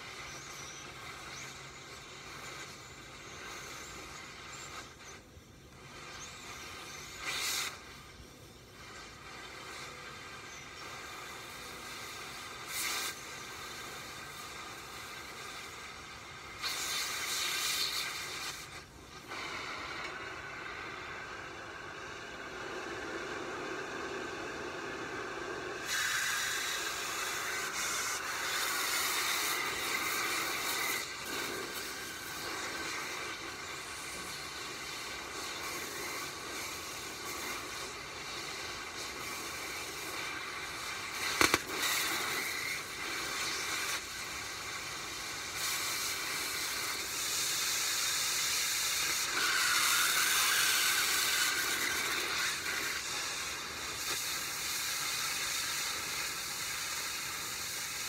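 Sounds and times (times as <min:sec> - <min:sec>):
cutting torch flame hissing: 0:00.0 - 0:58.0
sharp clicks: 0:41.1 - 0:42.8.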